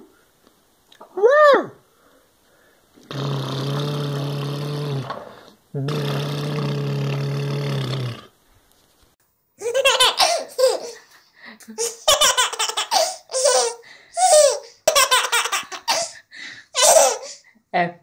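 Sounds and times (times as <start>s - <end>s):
baby laughing: 9.6s - 11.1s, 11.8s - 17.4s.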